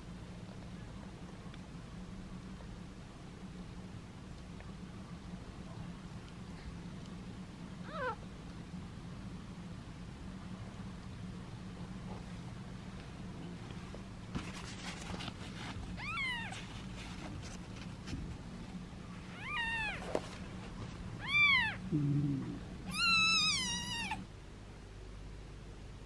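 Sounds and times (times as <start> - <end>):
kitten mewing: 7.8 - 8.2, 16.0 - 16.6, 19.3 - 20.0, 21.2 - 24.3.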